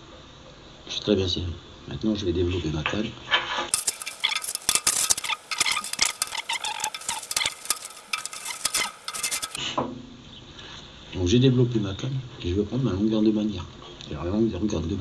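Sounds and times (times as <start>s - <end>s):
fishing pole sections sliding out: 3.7s - 9.6s.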